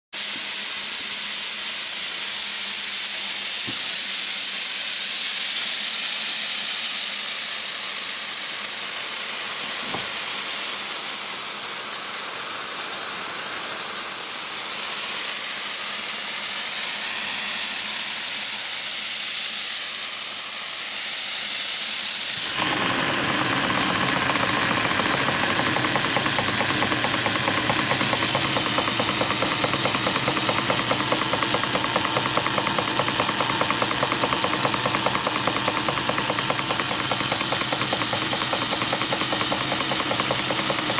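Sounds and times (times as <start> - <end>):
steam hissing: 0.2 - 40.9
model steam engine beat: 22.4 - 40.9.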